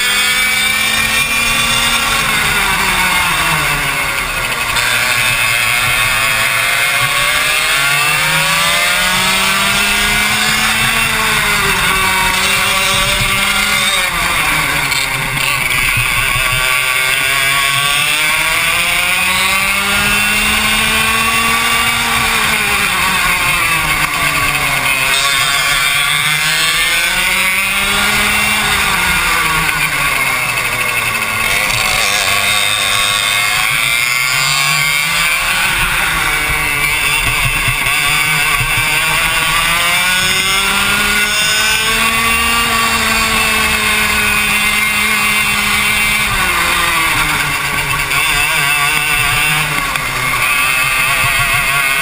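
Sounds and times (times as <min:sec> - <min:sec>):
kart engine revving: 0:00.0 - 0:52.0.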